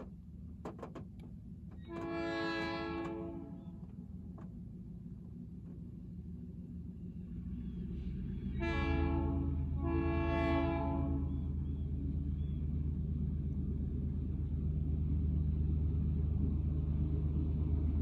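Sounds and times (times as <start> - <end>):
locomotive engine rumble: 0.0 - 18.0
locomotive horn blasts: 1.8 - 3.8, 8.5 - 11.6.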